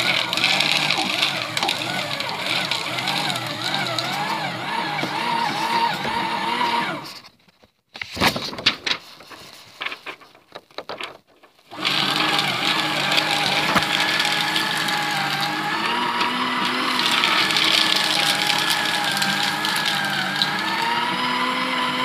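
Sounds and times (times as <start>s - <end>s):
paper shredder motor running: 0.0s - 7.2s, 11.7s - 22.0s
paper rustling: 0.0s - 21.0s.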